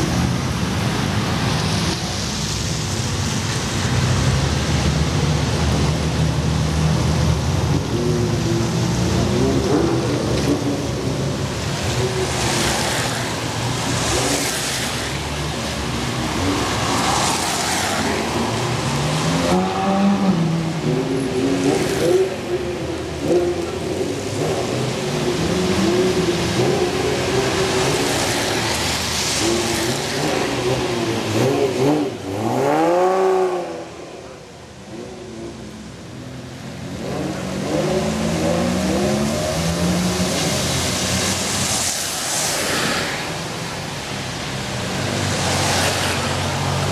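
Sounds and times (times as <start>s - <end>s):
tyres hissing on wet road: 0.0s - 46.9s
sports cars pulling away: 3.6s - 34.2s, 36.6s - 46.9s
tyre hiss on wet road: 39.7s - 46.9s.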